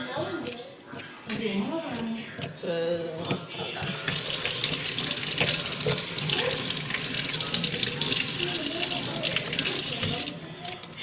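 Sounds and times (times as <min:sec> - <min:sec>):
tap water splashing into sink: 0:03.8 - 0:10.4.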